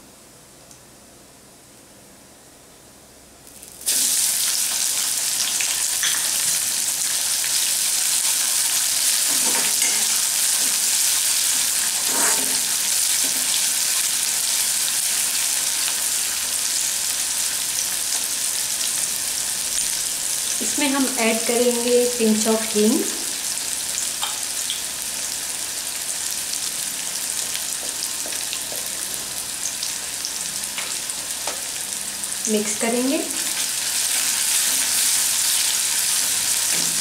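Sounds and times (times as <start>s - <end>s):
onion sizzling in hot oil: 3.4s - 37.0s
metal spatula scraping pan: 11.9s - 12.7s.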